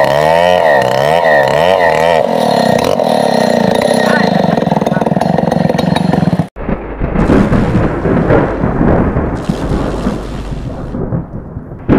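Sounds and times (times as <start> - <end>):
chainsaw running: 0.0 - 6.5, 9.4 - 10.8
thunder-like noise effect: 6.6 - 11.9.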